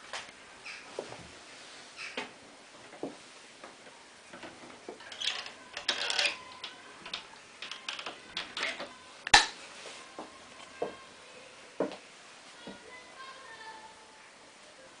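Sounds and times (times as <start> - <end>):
handling clicks and knocks: 4.4 - 9.5.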